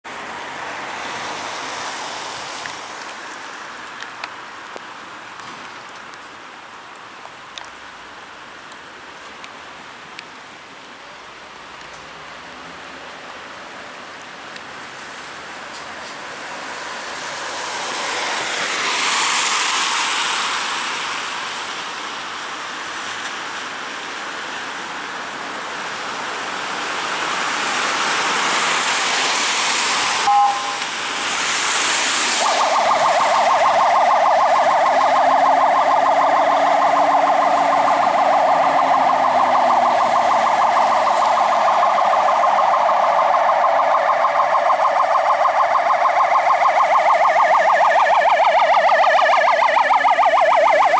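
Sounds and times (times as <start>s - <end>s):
tyres hissing on wet road: 0.1s - 50.9s
electronic yelp siren: 30.0s - 30.9s, 32.4s - 50.9s
brief tone: 30.3s - 30.9s.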